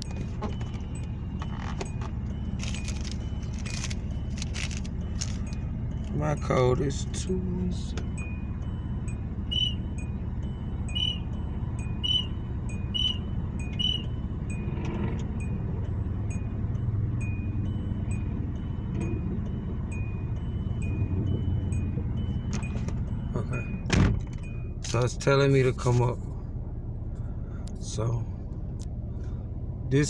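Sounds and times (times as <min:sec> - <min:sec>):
keypad beeps: 0:00.0 - 0:06.5, 0:07.8 - 0:15.6
short electronic beep: 0:00.0 - 0:15.6
car engine idling: 0:00.0 - 0:30.0.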